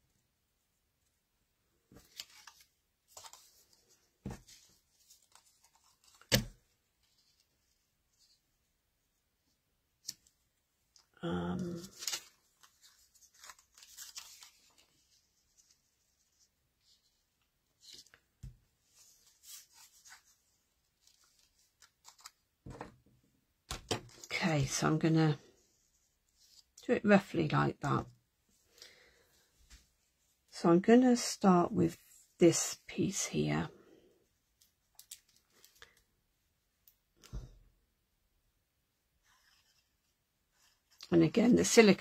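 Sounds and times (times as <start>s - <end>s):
paper rustling: 1.9s - 8.4s, 11.5s - 23.0s
paper rustling and sliding: 11.8s - 16.0s.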